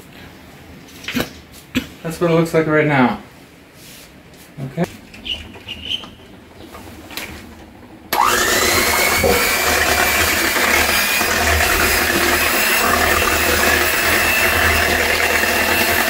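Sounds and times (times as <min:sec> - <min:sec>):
beaters whisking milk: 0:04.9 - 0:16.0
electric hand mixer whirring: 0:07.6 - 0:16.0.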